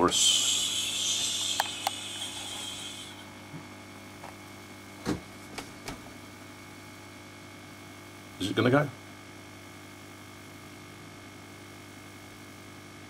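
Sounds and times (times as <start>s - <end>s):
high hiss: 0.0s - 3.3s
hot air gun humming: 0.0s - 3.9s.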